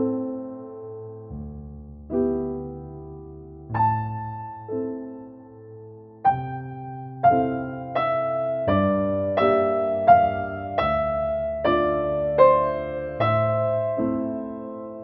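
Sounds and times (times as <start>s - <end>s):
gentle piano music: 0.0s - 15.0s.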